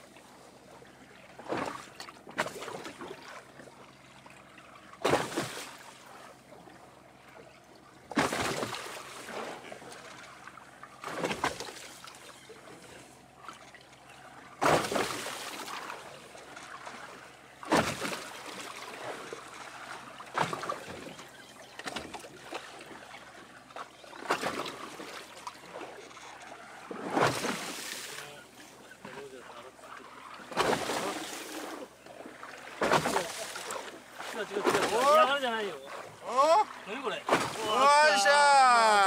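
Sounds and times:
waves slapping against boat: 0:00.0 - 0:39.0
water splash: 0:01.4 - 0:03.5, 0:05.0 - 0:06.2, 0:08.1 - 0:10.4, 0:11.0 - 0:12.2, 0:14.6 - 0:21.1, 0:23.7 - 0:25.9, 0:26.8 - 0:28.3, 0:30.0 - 0:39.0.

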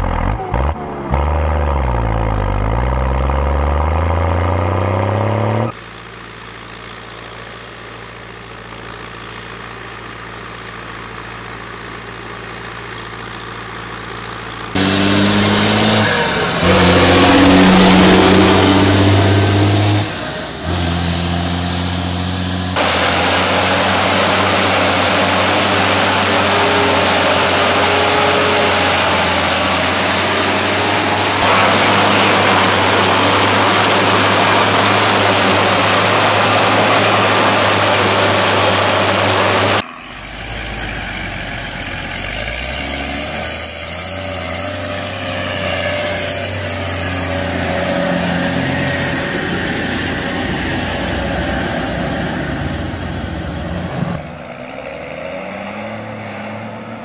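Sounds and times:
engine running with wavering pitch: 0:00.0 - 0:57.0
low hum: 0:14.8 - 0:42.4.

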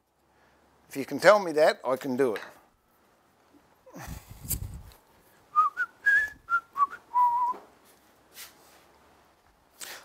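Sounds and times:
man whistling: 0:05.5 - 0:07.6.

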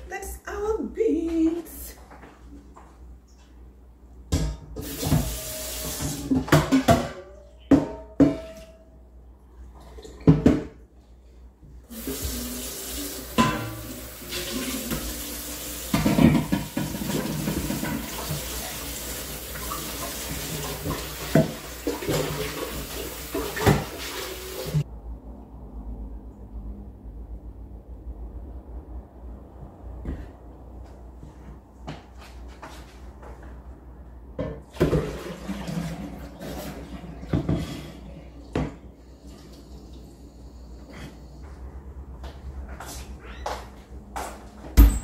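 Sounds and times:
metal pot clanking: 0:13.4 - 0:14.7.

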